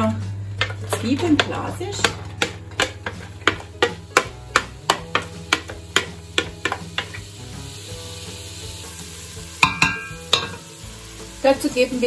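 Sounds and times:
onions sizzling in butter: 0.0 - 12.0
container knocking on metal pot: 0.6 - 7.2, 9.6 - 10.6.

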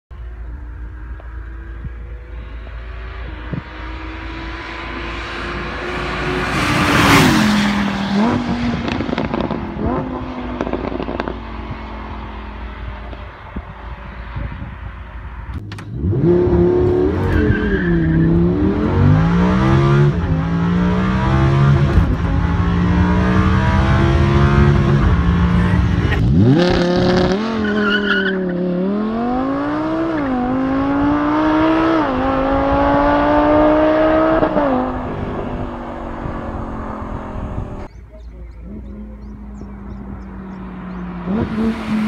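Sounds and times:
car engine revving through gears: 2.8 - 12.4, 15.5 - 37.9, 38.6 - 42.0.

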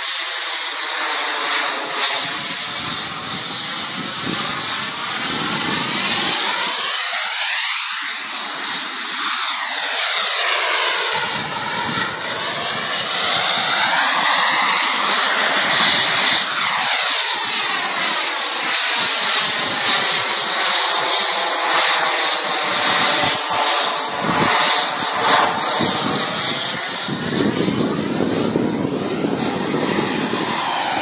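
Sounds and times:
fighter jet engine flying past: 0.0 - 31.0.

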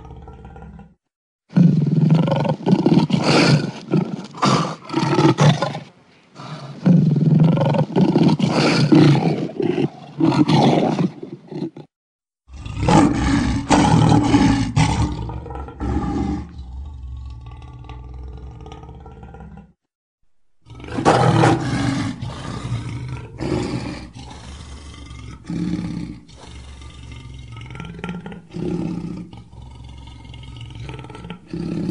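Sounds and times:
lion roaring: 0.0 - 5.8, 12.5 - 19.8, 20.6 - 31.9.

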